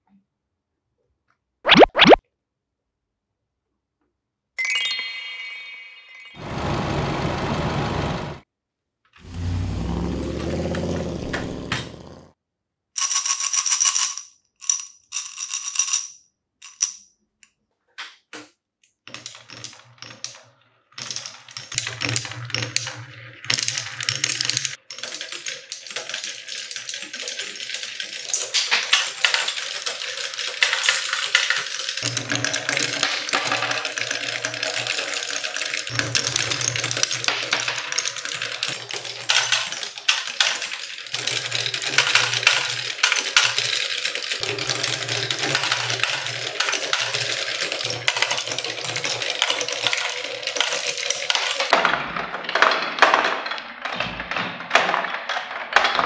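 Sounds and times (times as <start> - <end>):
marbles rumbling on wooden rails: 9.3 - 12.3, 19.1 - 56.0
marbles clattering down wooden run: 13.0 - 17.0, 21.0 - 56.0.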